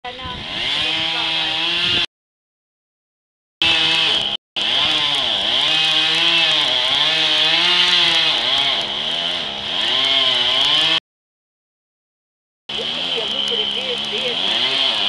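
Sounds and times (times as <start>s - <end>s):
chainsaw cutting wood: 0.1s - 2.1s, 3.6s - 11.0s, 12.7s - 15.0s.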